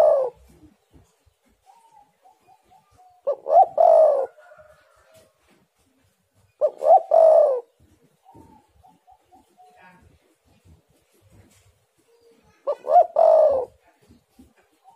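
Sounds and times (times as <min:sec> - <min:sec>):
dove cooing: 0:00.0 - 0:00.8, 0:01.4 - 0:05.1, 0:06.6 - 0:09.9, 0:12.3 - 0:14.9.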